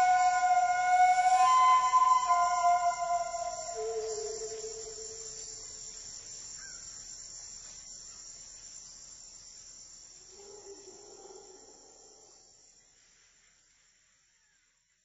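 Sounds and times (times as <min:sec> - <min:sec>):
soft low sustained tone: 0:00.0 - 0:05.3
crickets chirping: 0:00.0 - 0:15.0.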